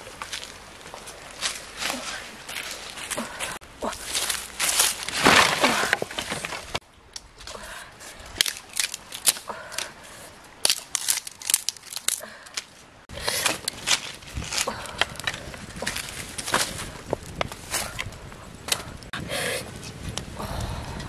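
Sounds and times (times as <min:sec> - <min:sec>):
crunching of dry leaves: 0:00.0 - 0:06.8, 0:08.0 - 0:18.6
dry sticks snapping: 0:04.1 - 0:07.6, 0:08.3 - 0:19.1.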